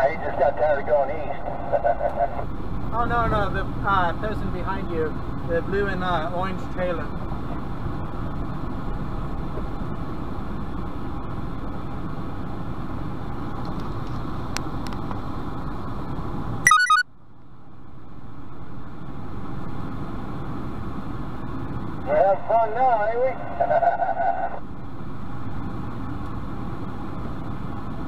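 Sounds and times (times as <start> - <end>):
truck engine and road rumble: 0.0 - 28.0
rapid high beeps: 16.7 - 17.0.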